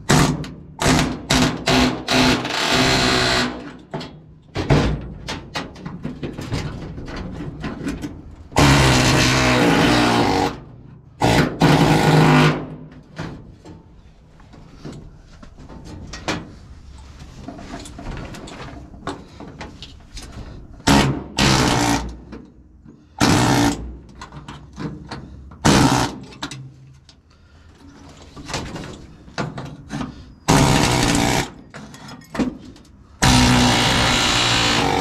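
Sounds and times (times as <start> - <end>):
loose metal clinks and scrapes: 31.7 - 33.0.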